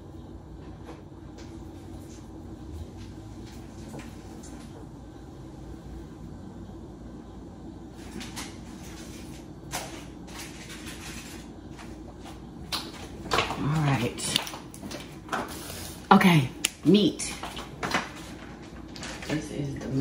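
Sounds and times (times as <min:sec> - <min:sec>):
low room hum: 0:00.0 - 0:20.0
kitchen knocks and clatters: 0:08.0 - 0:15.6, 0:17.3 - 0:20.0.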